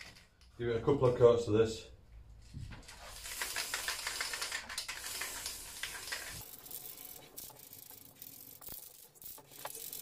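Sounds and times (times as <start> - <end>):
aerosol spray can hissing: 3.2 - 10.0.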